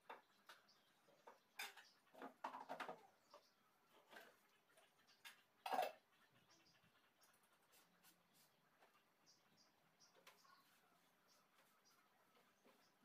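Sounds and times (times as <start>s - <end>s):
dishes and utensils clinking: 1.5s - 3.0s, 5.2s - 6.0s.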